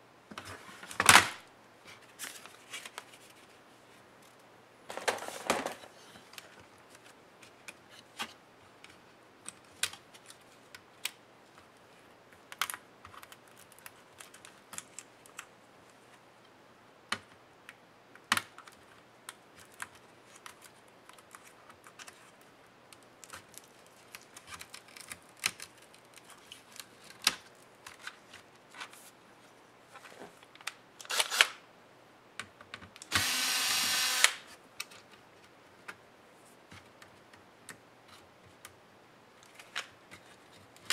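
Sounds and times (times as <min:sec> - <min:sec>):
laptop parts clicking and tapping: 0:23.0 - 0:28.1
cordless electric screwdriver running: 0:33.1 - 0:34.4.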